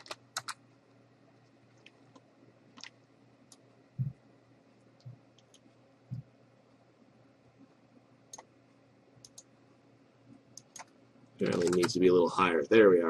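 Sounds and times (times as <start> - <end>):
faint steady hum: 0.0 - 13.0
computer mouse clicks: 1.4 - 3.7, 5.0 - 6.3, 8.3 - 8.5, 9.2 - 9.5, 10.6 - 12.0
dull low thumps: 4.0 - 4.2.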